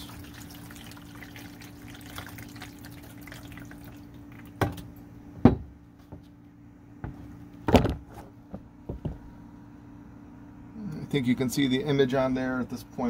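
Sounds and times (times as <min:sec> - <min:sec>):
water trickling and splashing: 0:00.0 - 0:04.6
steady low hum: 0:00.0 - 0:13.0.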